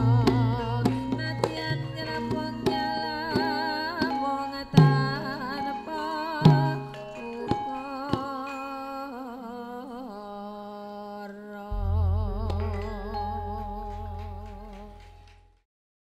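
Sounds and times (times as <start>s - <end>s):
woman singing long note: 11.6s - 15.2s
large gong struck: 11.7s - 15.4s
bronze instruments ringing: 11.7s - 15.5s.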